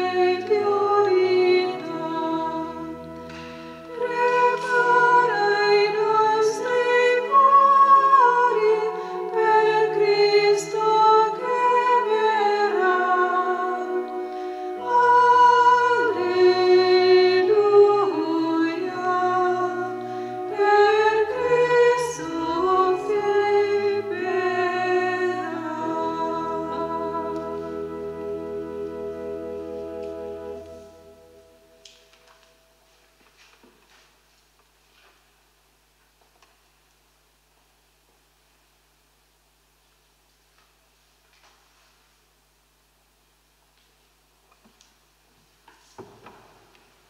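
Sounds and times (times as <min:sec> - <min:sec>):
voices singing a hymn: 0:00.0 - 0:31.6
held accompanying chords: 0:00.0 - 0:33.4.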